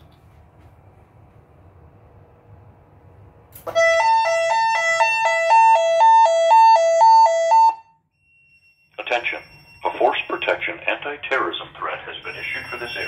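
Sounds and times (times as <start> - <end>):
two-note alarm tone: 3.7 - 8.8.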